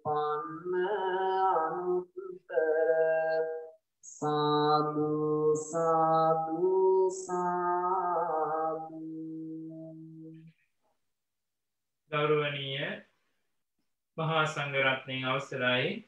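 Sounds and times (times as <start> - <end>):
person chanting: 0.0 - 10.5.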